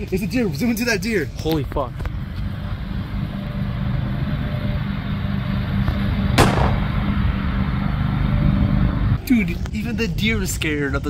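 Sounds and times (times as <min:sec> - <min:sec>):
distant lawn mower engine: 0:02.0 - 0:09.2.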